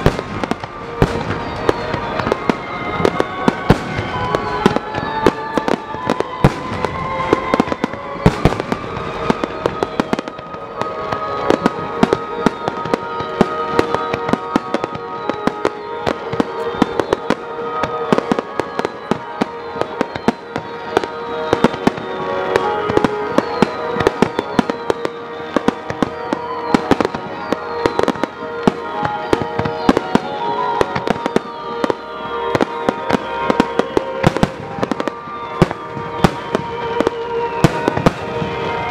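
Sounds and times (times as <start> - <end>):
fireworks bursting with sharp bangs: 0.0 - 38.9
music with sustained tones: 0.0 - 38.9.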